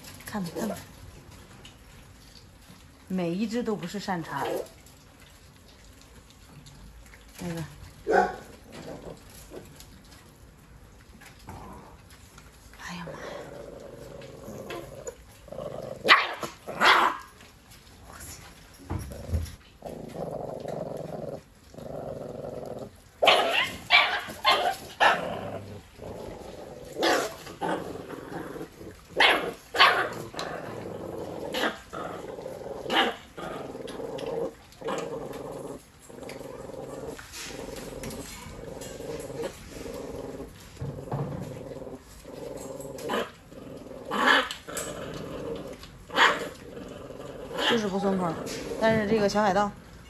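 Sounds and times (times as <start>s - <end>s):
puppies growling: 0.0s - 50.0s
puppies barking and yelping: 23.1s - 33.4s.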